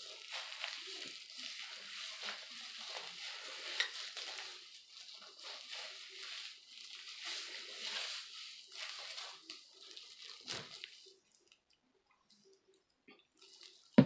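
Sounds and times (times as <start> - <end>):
plastic gloves rustling and squishing: 0.0 - 14.0.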